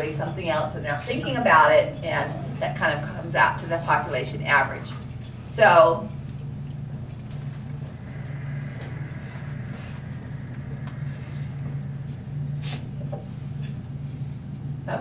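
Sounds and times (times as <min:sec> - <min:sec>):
steady low hum: 0:00.0 - 0:15.0
breathy hiss: 0:06.9 - 0:14.5.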